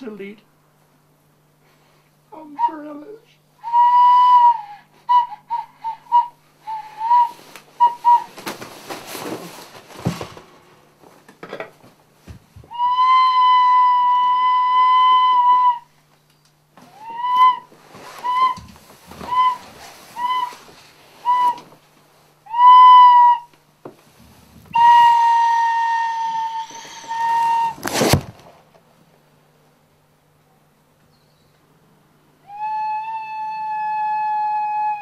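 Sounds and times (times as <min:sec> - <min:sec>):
high pure whistling tone: 0:03.6 - 0:08.5, 0:12.7 - 0:21.7, 0:24.7 - 0:28.2, 0:32.4 - 0:35.0.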